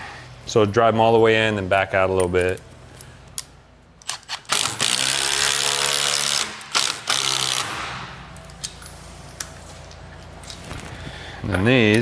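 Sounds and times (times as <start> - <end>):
power driver driving bolt into wood: 4.0 - 8.1.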